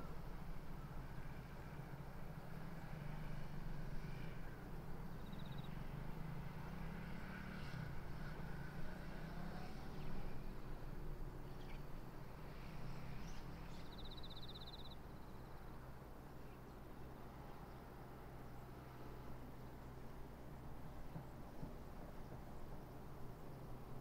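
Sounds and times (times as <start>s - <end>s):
diesel railcar engine droning: 0.0s - 24.0s.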